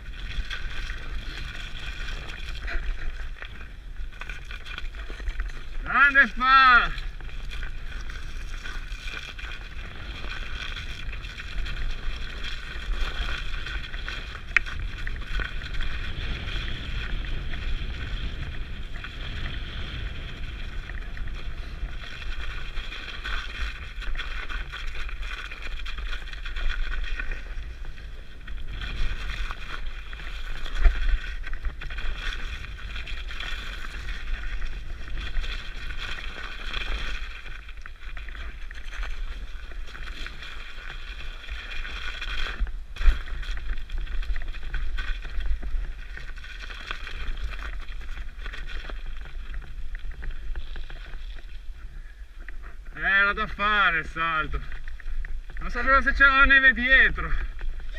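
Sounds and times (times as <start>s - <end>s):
bike rumbling: 0.0s - 57.9s
wind rushing on microphone: 4.9s - 40.4s.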